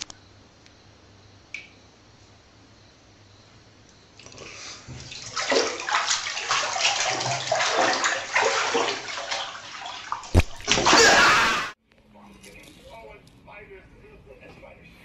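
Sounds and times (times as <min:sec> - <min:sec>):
running water splashing: 0:04.2 - 0:11.8.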